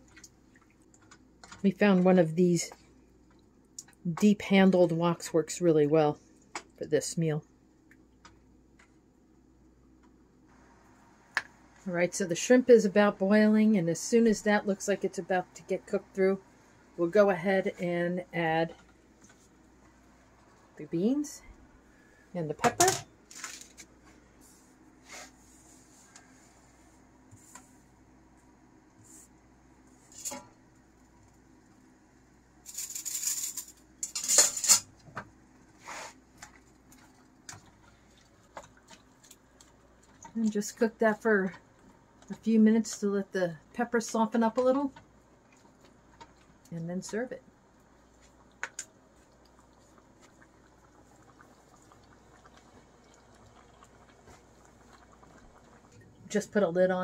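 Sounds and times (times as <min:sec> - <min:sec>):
curry bubbling in a wok: 0:48.0 - 0:56.1.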